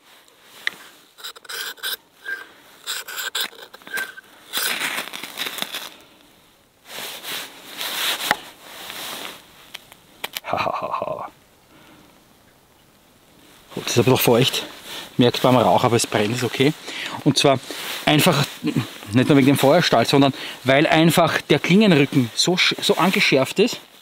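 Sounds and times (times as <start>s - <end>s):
knife scraping a ferro rod: 0.6s - 5.8s.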